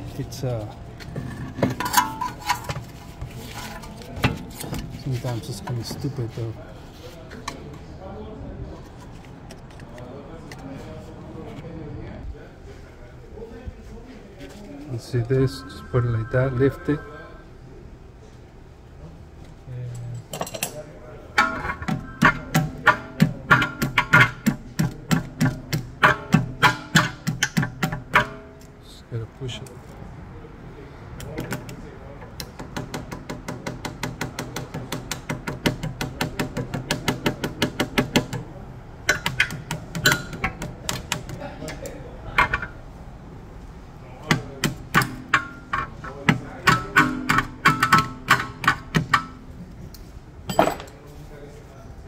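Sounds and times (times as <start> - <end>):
hammer striking metal: 15.2 - 17.4, 21.4 - 24.5, 44.3 - 49.4.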